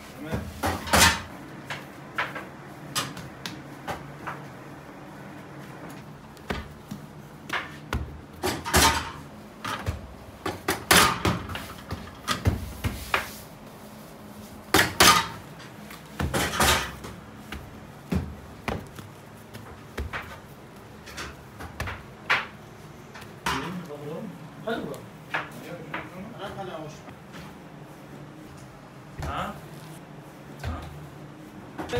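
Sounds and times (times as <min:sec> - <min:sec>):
dough thudding on a board: 0:06.3 - 0:09.0, 0:15.9 - 0:20.8.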